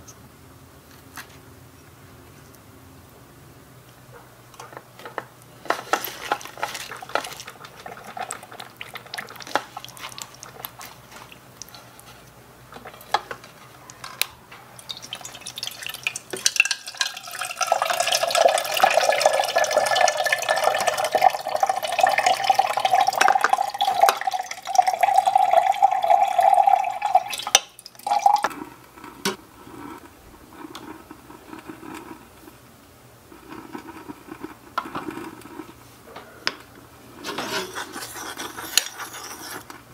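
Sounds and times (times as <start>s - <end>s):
hands handling wet cabbage: 5.7s - 14.3s.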